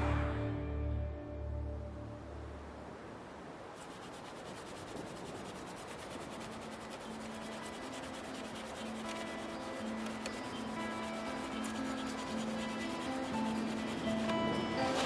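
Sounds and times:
faint low sustained notes: 0.0s - 3.2s
scratchy rubbing noise: 3.8s - 15.0s.

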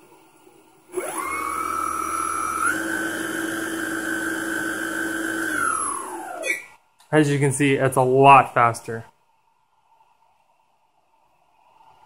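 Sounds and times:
electric motor whine: 0.9s - 6.7s.

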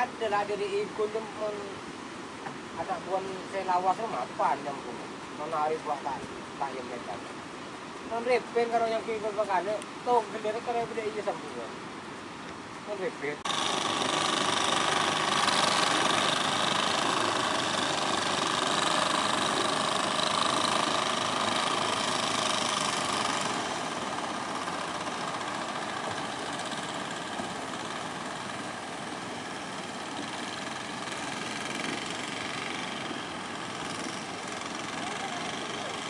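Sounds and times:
boat engine running: 13.5s - 36.0s.

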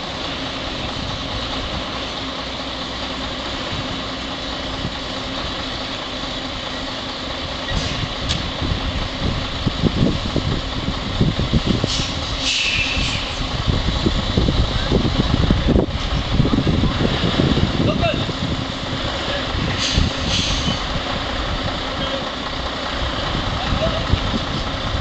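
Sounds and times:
diesel truck engine running: 0.0s - 25.0s
short hisses: 11.9s - 13.4s, 19.7s - 20.8s.

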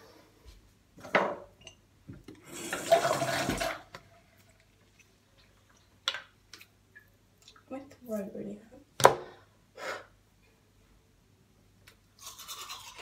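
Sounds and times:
tap water running: 2.2s - 4.2s.

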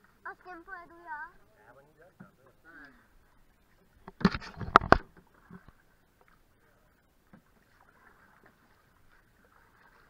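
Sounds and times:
paddle strokes in water: 2.1s - 10.0s.

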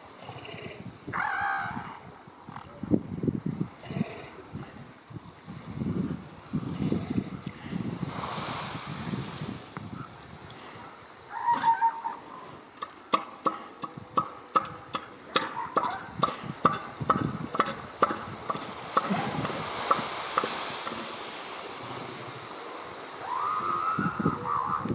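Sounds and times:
elephant seal pulsed call: 11.3s - 12.5s.

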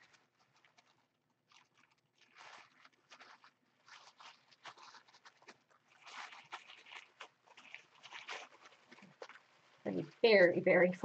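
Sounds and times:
tissue paper rustling: 0.0s - 11.0s.

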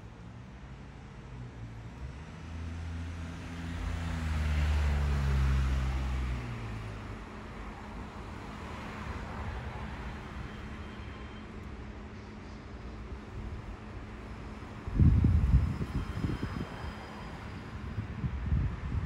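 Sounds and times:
vehicle engine drone passing: 1.6s - 11.9s.

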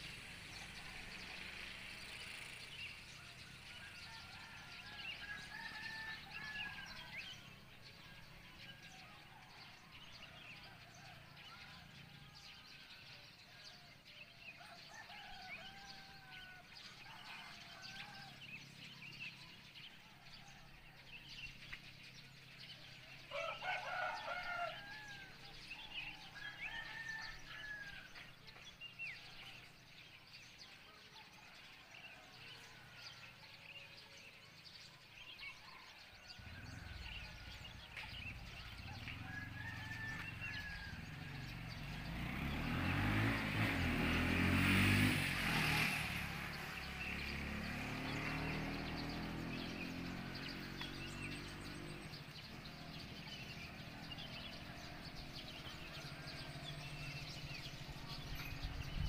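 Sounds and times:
roosters crowing: 3.3s - 7.5s, 23.2s - 28.2s, 35.8s - 59.0s
small birds chirping: 16.4s - 59.0s
vehicle engine rumble: 36.3s - 59.0s.

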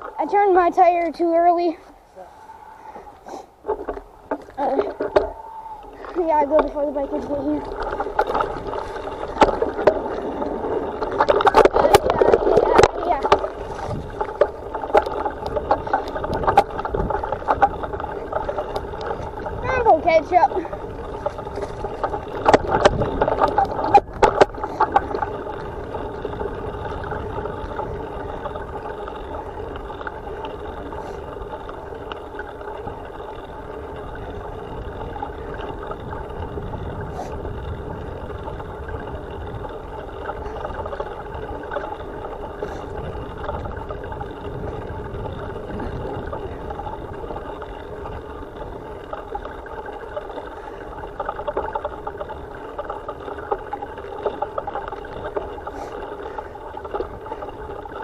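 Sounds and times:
bicycle tyre rumble on dirt: 0.0s - 58.0s
bike jolting over bumps: 0.0s - 58.0s.

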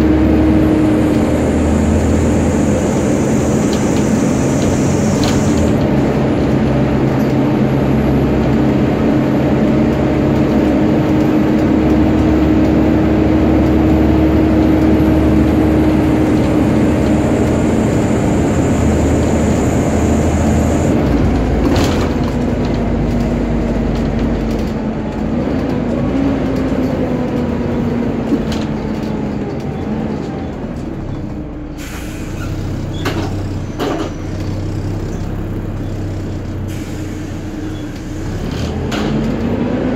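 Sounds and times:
bus engine rumble: 0.0s - 39.9s
brief air hisses: 2.4s - 5.7s, 31.8s - 32.6s
cooling fan whine: 14.1s - 21.4s.

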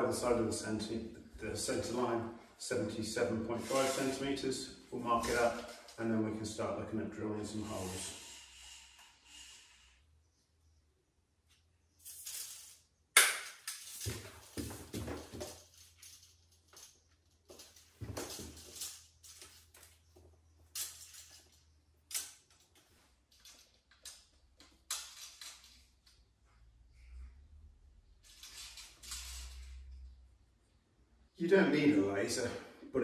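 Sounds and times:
tape measure blade scraping: 3.5s - 4.2s.

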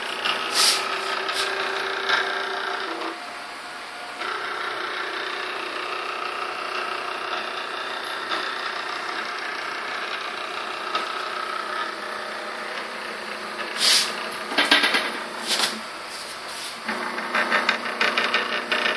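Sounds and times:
machine clatter: 4.2s - 12.0s, 12.7s - 15.8s, 16.8s - 18.9s.

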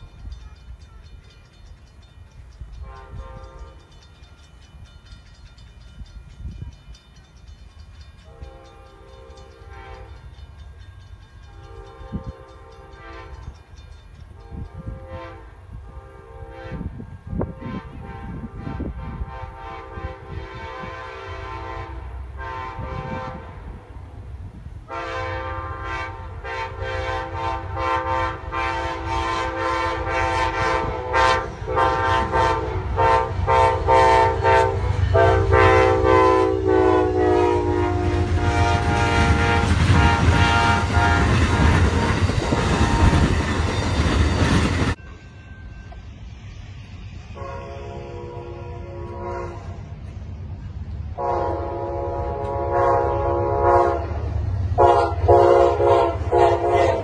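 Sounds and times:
passing train rush and clatter: 0.0s - 57.0s
locomotive air horn: 2.8s - 3.9s, 8.3s - 10.2s, 11.6s - 13.5s, 14.4s - 23.8s, 24.9s - 43.7s, 47.3s - 50.0s, 51.2s - 57.0s.

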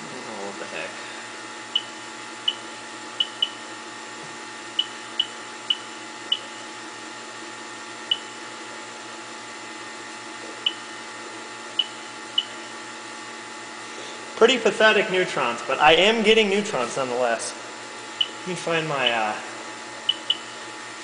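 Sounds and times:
equipment hum and buzz: 0.0s - 21.0s
radiation counter clicking: 1.7s - 3.6s, 4.7s - 6.6s, 8.0s - 8.4s, 10.6s - 10.9s, 11.7s - 12.7s, 20.0s - 20.6s.

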